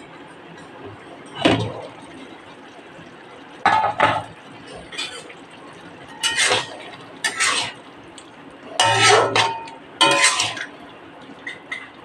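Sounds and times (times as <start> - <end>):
metal spatula scraping a wok: 6.2 - 7.8, 8.8 - 10.6.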